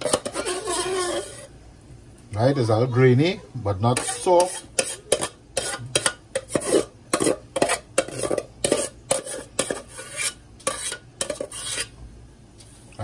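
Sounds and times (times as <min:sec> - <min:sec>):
metal spoon scraping metal pot: 0:00.0 - 0:01.5, 0:03.9 - 0:12.0.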